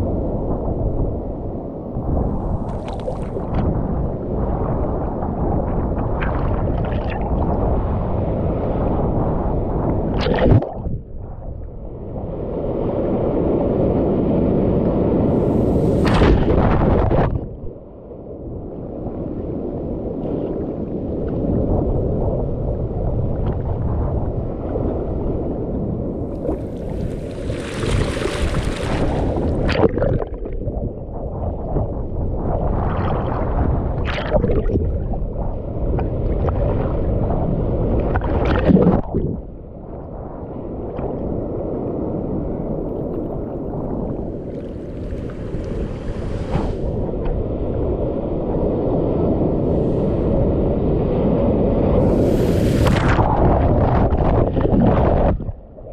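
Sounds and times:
muffled underwater churning: 1.9s - 12.1s, 20.3s - 42.3s, 43.4s - 55.9s
waves splashing: 26.2s - 30.3s, 43.9s - 54.4s.

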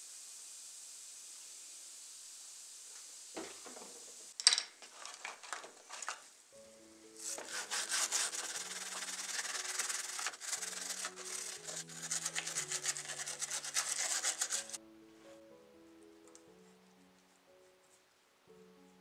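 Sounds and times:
brush scrubbing metal parts: 4.8s - 6.2s, 7.2s - 14.8s
soft background music: 6.4s - 19.0s.

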